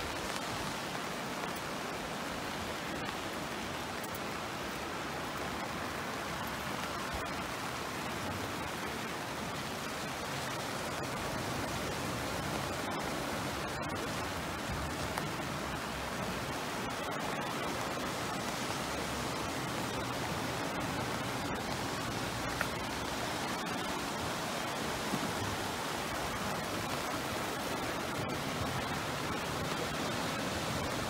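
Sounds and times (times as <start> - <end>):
river rushing: 0.0 - 31.0.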